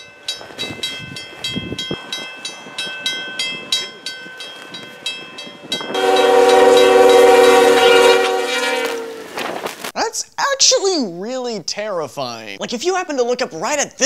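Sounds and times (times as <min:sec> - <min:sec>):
railroad crossing bell dinging: 0:00.0 - 0:09.1
train rushing through snow: 0:00.0 - 0:09.8
locomotive air horn chord: 0:05.9 - 0:09.4.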